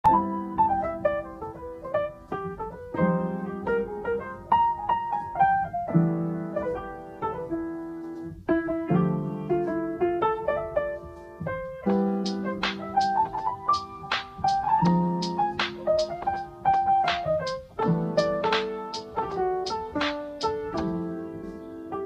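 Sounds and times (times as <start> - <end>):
gentle piano music: 0.0 - 22.0.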